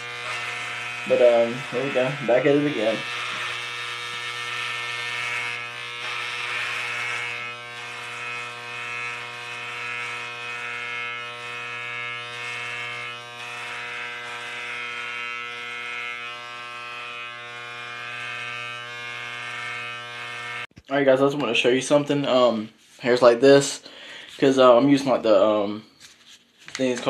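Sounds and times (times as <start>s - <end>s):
electric shaver buzzing: 0.0s - 20.7s.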